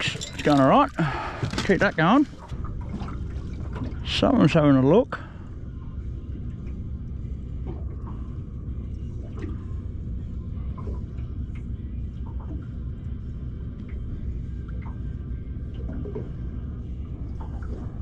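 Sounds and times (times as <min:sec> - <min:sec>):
steady low rumble: 0:00.0 - 0:18.0
water lapping against boat hull: 0:00.0 - 0:18.0
faint drips and ticks: 0:10.6 - 0:12.8, 0:13.7 - 0:15.0.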